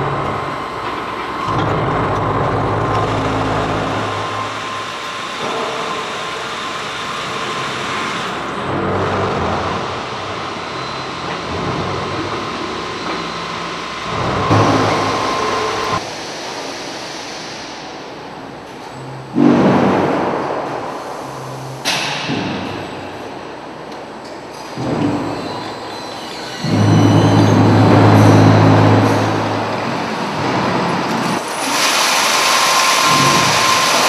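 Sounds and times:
machine noise surge: 0.0s - 18.0s, 26.5s - 34.0s
conveyor drives humming: 0.0s - 34.0s
steady high whine: 12.1s - 16.7s.

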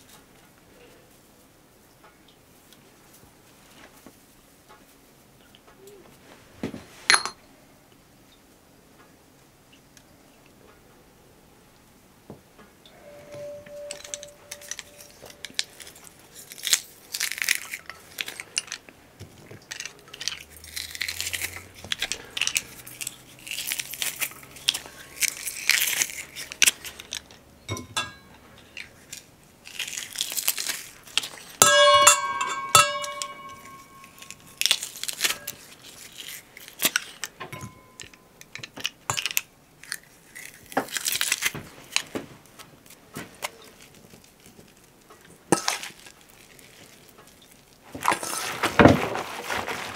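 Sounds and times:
bowl clinking: 7.1s - 7.4s, 12.9s - 16.2s, 27.7s - 28.9s, 31.1s - 35.6s, 37.5s - 39.4s
rustling and crunching of food: 11.8s - 49.9s.

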